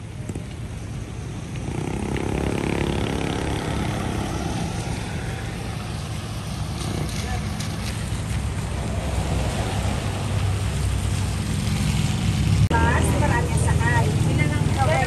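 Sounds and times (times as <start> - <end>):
low rumble of traffic: 0.0 - 15.0
truck driving past on wet road: 1.6 - 13.2.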